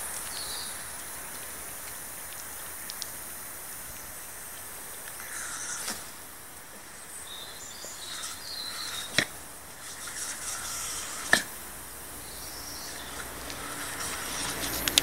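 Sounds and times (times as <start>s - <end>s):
hose water on pavement: 0.0s - 15.0s
sharp clicks: 0.1s - 3.5s, 12.9s - 15.0s.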